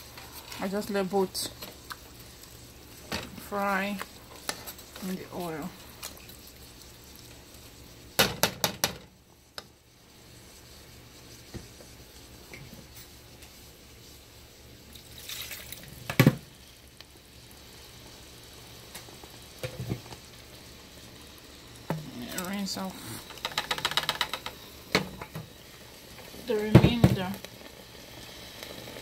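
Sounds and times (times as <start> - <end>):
paste sizzling in oil: 0.0 - 8.3, 9.2 - 29.0
knock on pot: 8.2 - 9.0.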